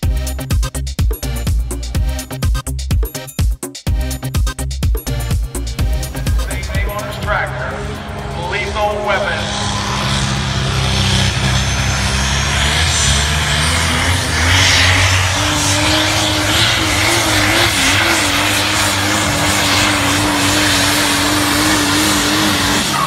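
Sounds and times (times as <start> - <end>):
vehicle engine running flat out: 5.1 - 23.0.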